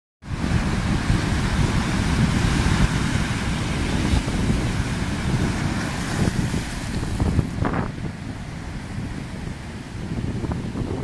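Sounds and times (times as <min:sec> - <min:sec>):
wind buffeting microphone: 0:00.2 - 0:11.0
sea surf breaking on rocks: 0:00.3 - 0:11.0.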